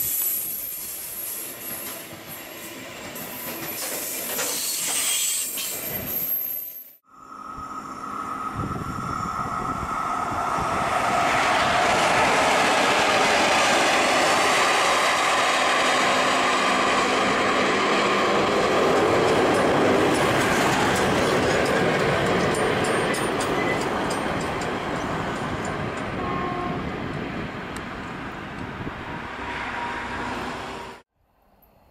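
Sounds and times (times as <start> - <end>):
electric locomotive running: 7.0 - 31.0.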